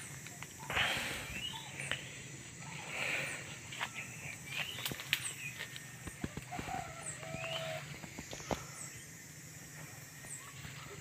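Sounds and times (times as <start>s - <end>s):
birds chirping: 0.0s - 11.0s
clicks and rustles in undergrowth: 3.4s - 9.0s.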